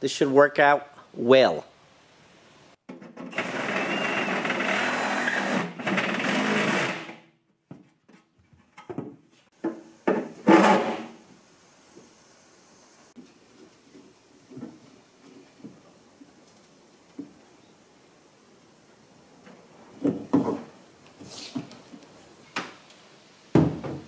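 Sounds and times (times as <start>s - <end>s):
drill boring through metal: 3.3s - 7.1s
knocks and handling clatter: 7.5s - 11.0s.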